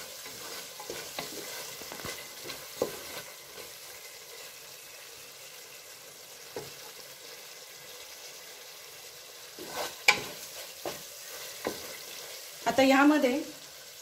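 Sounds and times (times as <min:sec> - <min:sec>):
spatula scraping a pot: 0:00.0 - 0:04.0, 0:09.5 - 0:12.4
beans sizzling in a pot: 0:00.0 - 0:14.0.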